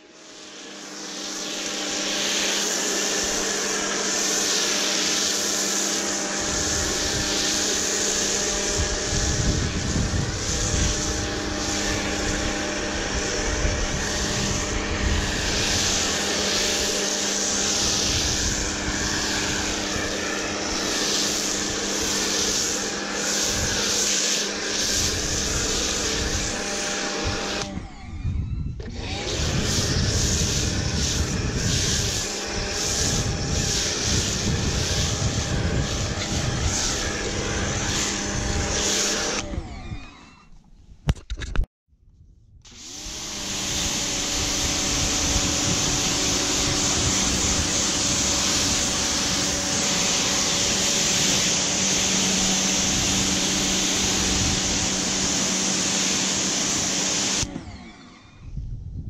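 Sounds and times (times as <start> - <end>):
foam cannon spraying hiss: 0.0 - 27.6, 29.4 - 39.4, 42.7 - 57.5
pressure washer pump humming: 0.0 - 28.0, 28.8 - 40.2, 42.7 - 58.2.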